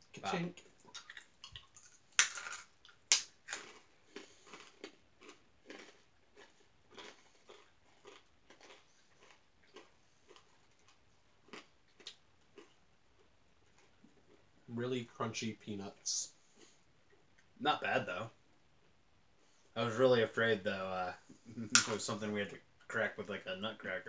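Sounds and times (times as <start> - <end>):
peanuts crunching being chewed: 0.6 - 14.4.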